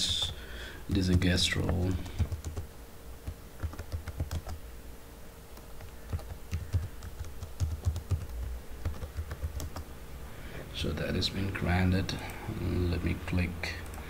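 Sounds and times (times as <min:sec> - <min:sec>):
computer keyboard typing: 0:00.0 - 0:04.6, 0:05.6 - 0:09.8.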